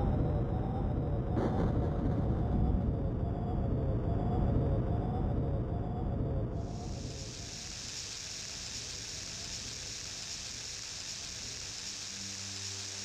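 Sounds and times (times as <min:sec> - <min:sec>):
steady rain falling: 0:06.7 - 0:13.0.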